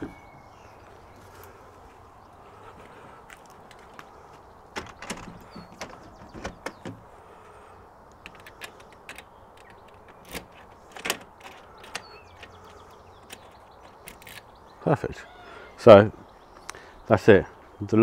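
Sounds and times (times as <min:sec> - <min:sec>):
patio door pushed shut: 0:04.7 - 0:07.0
door lock mechanism clunking: 0:04.7 - 0:07.1, 0:08.2 - 0:14.5
key turning in lock: 0:08.2 - 0:14.5.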